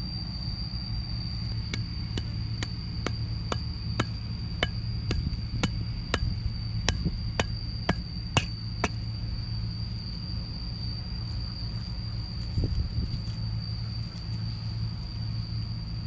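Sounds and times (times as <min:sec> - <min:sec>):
hoe knocking bamboo cane: 0:01.7 - 0:09.0.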